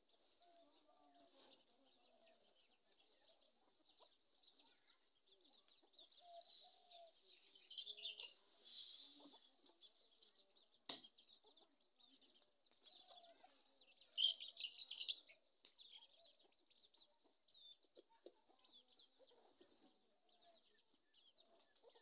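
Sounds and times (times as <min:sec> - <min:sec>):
birds chirping: 0:00.0 - 0:22.0
chickens clucking: 0:00.1 - 0:22.0.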